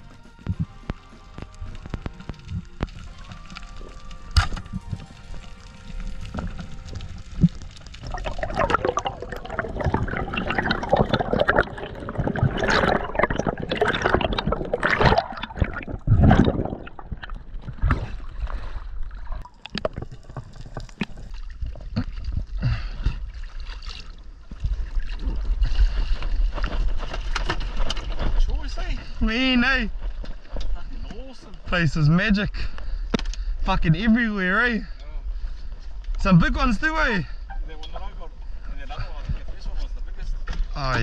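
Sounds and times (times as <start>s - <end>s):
underwater water gurgling: 0.0s - 27.9s.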